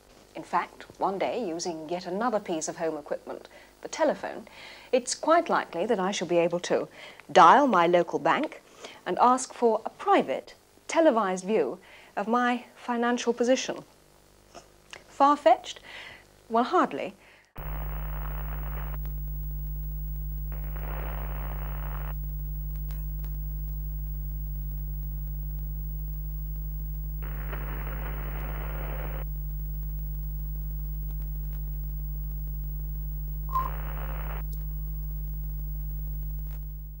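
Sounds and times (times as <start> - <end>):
faint clicks: 17.6 - 37.0
low electrical hum: 17.6 - 37.0
static hiss bursts: 17.6 - 37.0.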